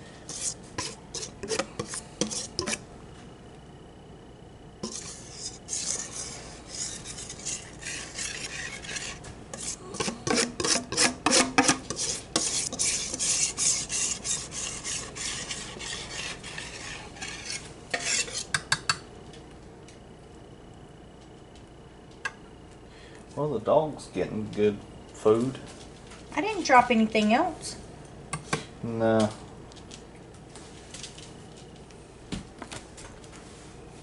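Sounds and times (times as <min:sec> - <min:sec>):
whisk scraping glass dish: 0:00.3 - 0:02.8, 0:04.8 - 0:18.9.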